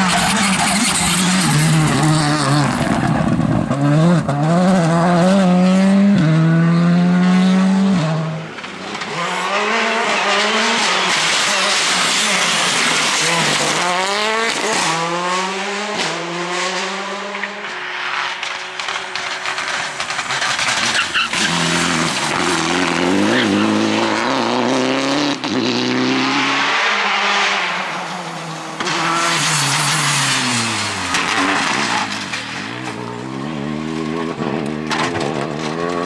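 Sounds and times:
tyre squeal: 0.0s - 3.2s, 20.3s - 23.8s
rally car engines revving: 0.0s - 36.0s.

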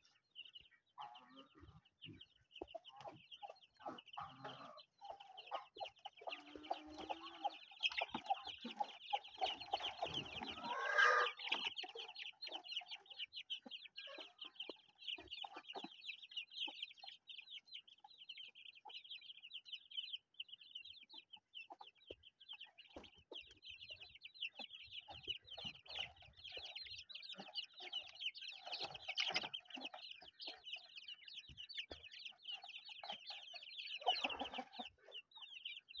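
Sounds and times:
chickens clucking: 0.0s - 36.0s
chicks peeping: 0.0s - 36.0s.

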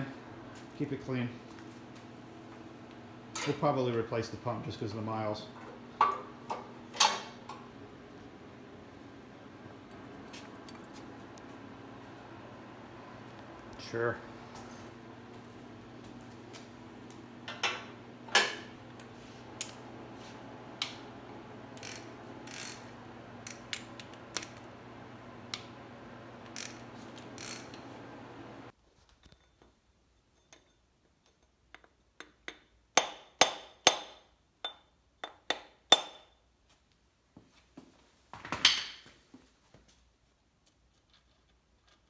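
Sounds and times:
steady hum: 0.0s - 28.7s
ratchet clicks: 21.8s - 22.8s, 26.5s - 26.8s
hammer striking metal: 32.2s - 36.3s.

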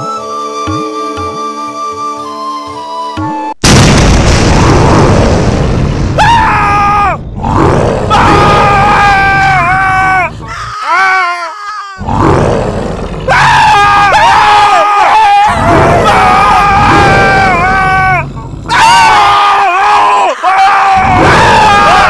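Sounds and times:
high wailing cries: 8.1s - 12.1s, 13.3s - 22.0s.

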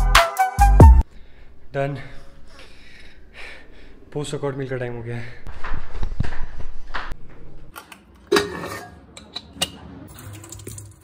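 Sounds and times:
steel cookware clanking: 8.3s - 9.8s.

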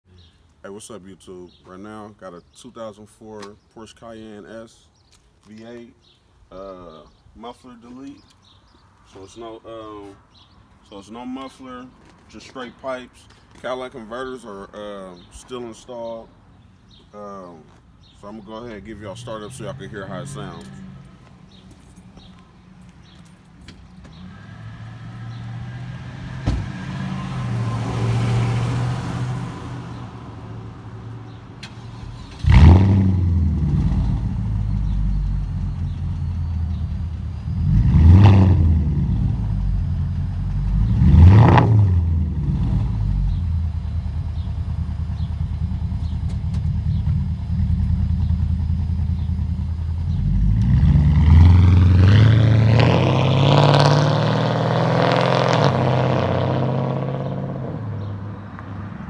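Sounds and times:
car engine starting and revving: 24.1s - 59.0s
engine rumbling idle: 43.0s - 50.7s.

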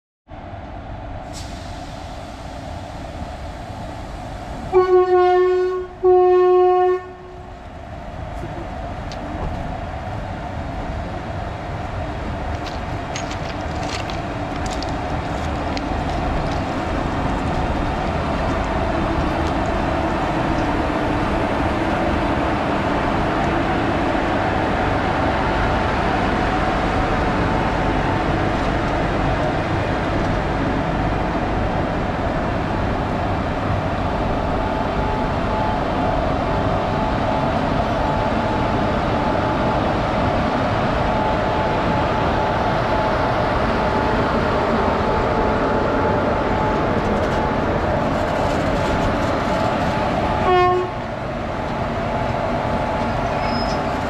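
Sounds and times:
locomotive horn blasts: 4.7s - 7.4s, 50.4s - 51.0s
wheels clicking: 12.6s - 19.8s.

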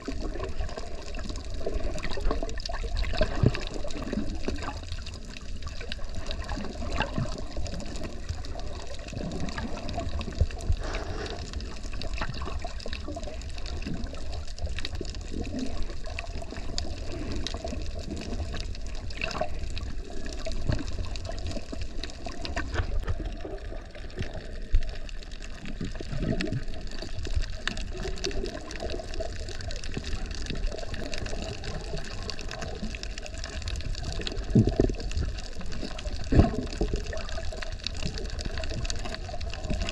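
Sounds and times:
muffled underwater rushing: 0.0s - 39.9s.

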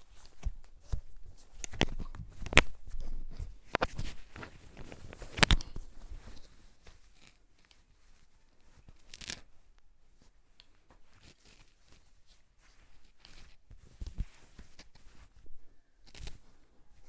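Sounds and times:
nylon straps rustling: 0.0s - 17.0s.

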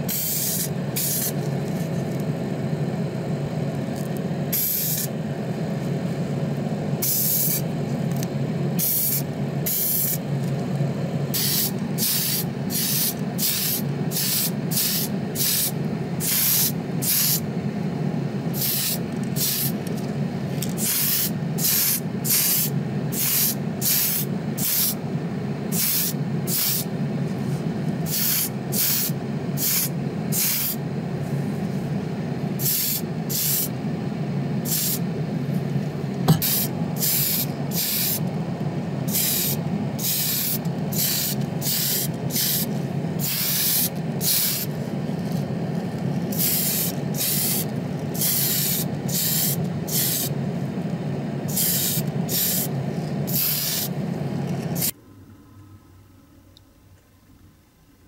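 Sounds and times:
steady low hum: 0.0s - 58.0s
paint spraying in bursts: 0.1s - 1.4s, 4.5s - 5.1s, 7.0s - 7.6s, 8.8s - 10.2s, 11.3s - 17.4s, 18.6s - 19.8s, 20.8s - 25.0s, 25.7s - 26.9s, 28.1s - 30.8s, 32.6s - 33.7s, 34.6s - 35.0s, 36.3s - 38.2s, 39.1s - 44.7s, 46.3s - 50.4s, 51.5s - 52.7s, 53.3s - 53.9s.

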